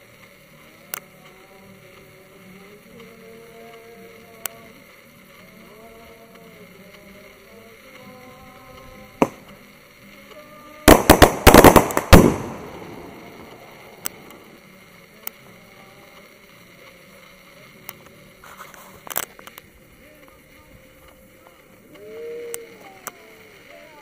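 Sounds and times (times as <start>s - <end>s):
firecrackers banging: 0.0s - 24.0s.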